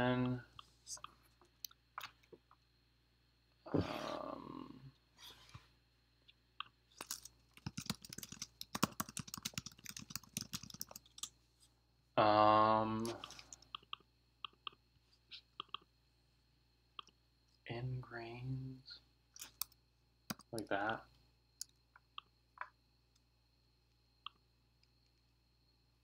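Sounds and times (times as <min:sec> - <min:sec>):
man humming hmm: 0:03.7 - 0:04.9
rapid typing on a keyboard: 0:07.0 - 0:11.3.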